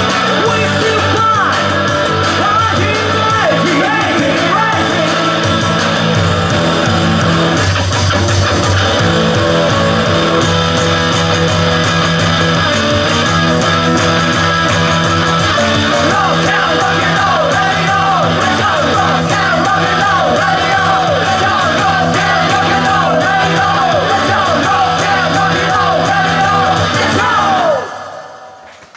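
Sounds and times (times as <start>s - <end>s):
people singing: 0.0s - 6.6s, 15.5s - 28.5s
bending high guitar lines: 0.0s - 27.6s
live rock band playing: 0.0s - 27.8s.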